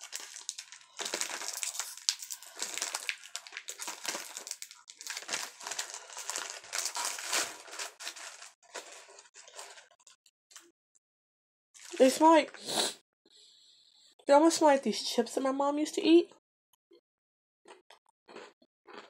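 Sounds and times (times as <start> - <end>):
snack packet crackling and rustling: 0.0 - 10.7.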